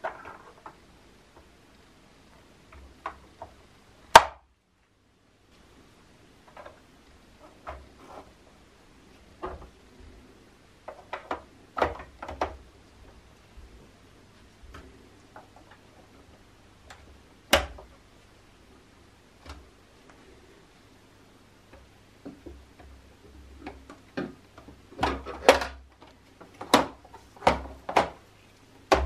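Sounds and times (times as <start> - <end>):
plastic panel clicks and knocks: 10.9 - 12.6.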